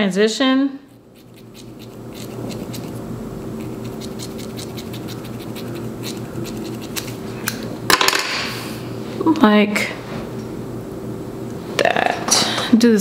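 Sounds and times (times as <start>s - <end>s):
scissors snipping hair: 0.9s - 3.0s, 3.6s - 7.6s.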